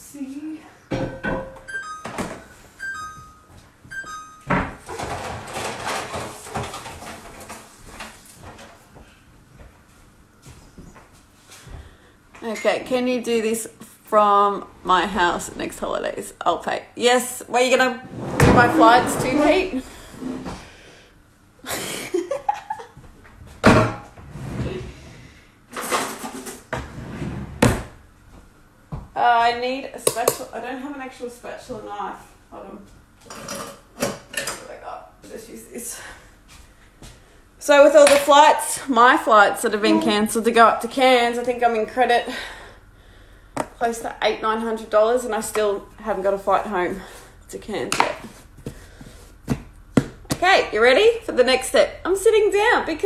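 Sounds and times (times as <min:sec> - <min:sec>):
two-note electronic beeps: 0:01.1 - 0:04.6
clattering and rustling of objects: 0:04.7 - 0:09.8, 0:25.7 - 0:27.0
person laughing: 0:21.6 - 0:23.0.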